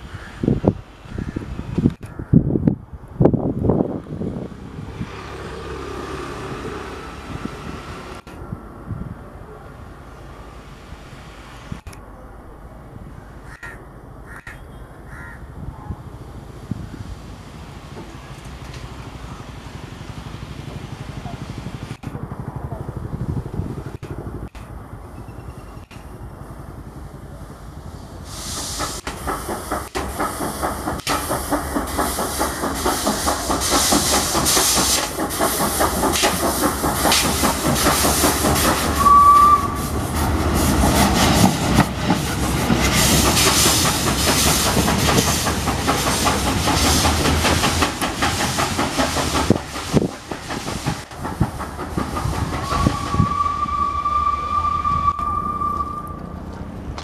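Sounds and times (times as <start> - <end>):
steam hissing: 9.8 - 12.0, 16.0 - 24.6, 25.2 - 56.4
train wheels clattering on rail: 16.4 - 26.9, 27.7 - 57.0
steam locomotive whistle toot: 38.6 - 40.1, 52.5 - 56.4.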